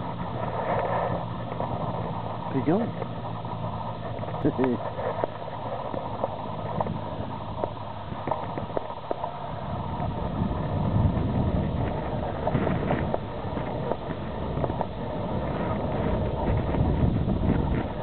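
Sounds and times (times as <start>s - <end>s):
shore ice clicking and tinkling: 0.0s - 10.7s
wind buffeting microphone: 0.0s - 18.0s.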